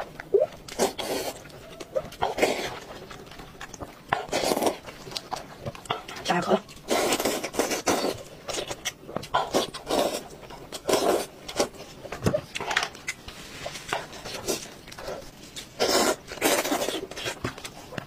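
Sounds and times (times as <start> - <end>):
chewing: 0.0 - 18.0
wet slurping and sucking: 0.7 - 1.6, 6.8 - 8.3, 15.7 - 17.4.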